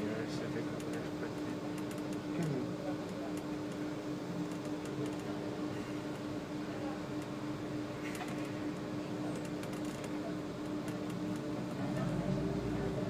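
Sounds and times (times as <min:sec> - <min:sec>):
light rattles and clicks: 0:00.6 - 0:03.8
bus engine running: 0:11.5 - 0:13.0.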